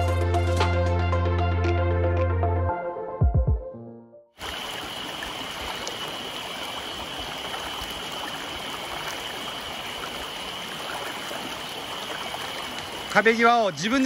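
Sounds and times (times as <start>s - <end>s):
stream rushing over rocks: 4.4s - 14.0s.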